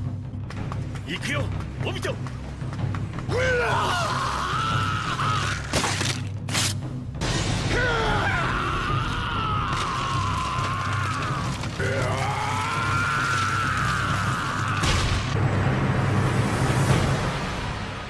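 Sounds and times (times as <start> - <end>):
music: 0.0 - 18.0
man screaming: 3.3 - 5.7, 7.7 - 14.9.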